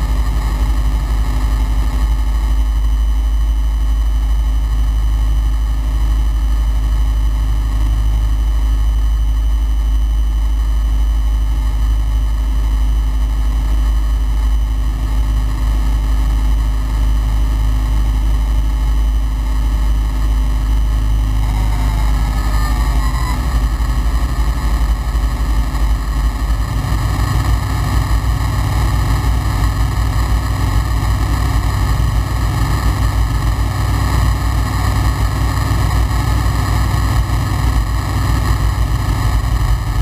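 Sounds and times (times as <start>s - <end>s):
aircraft engine droning: 18.8s - 31.7s.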